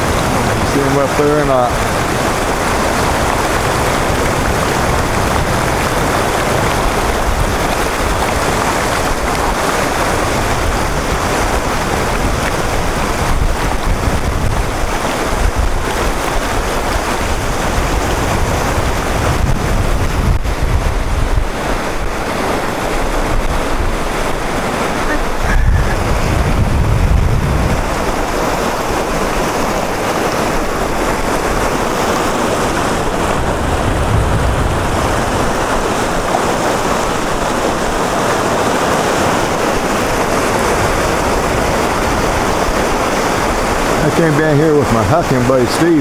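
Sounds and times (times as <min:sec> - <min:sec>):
river rapids rushing: 0:00.0 - 0:46.0
wind buffeting microphone: 0:00.0 - 0:46.0.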